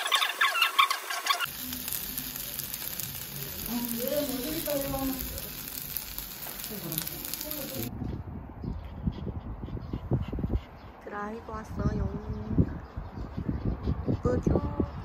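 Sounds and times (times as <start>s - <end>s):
rice sizzling: 0.0s - 7.9s
faint voices: 2.2s - 7.9s.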